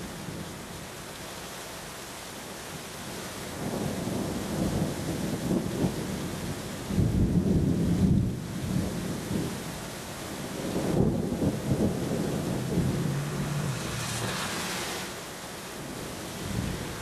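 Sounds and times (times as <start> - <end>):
steady rain: 0.0 - 17.0
thunder rumbling: 10.5 - 17.0.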